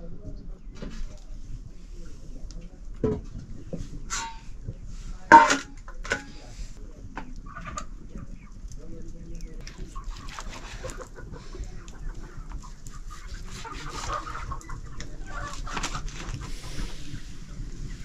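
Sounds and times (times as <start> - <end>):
chickens clucking: 0.0 - 18.0.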